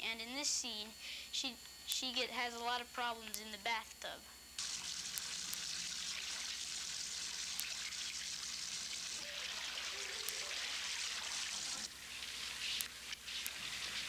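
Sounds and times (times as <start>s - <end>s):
water running into bathtub: 4.6s - 14.0s.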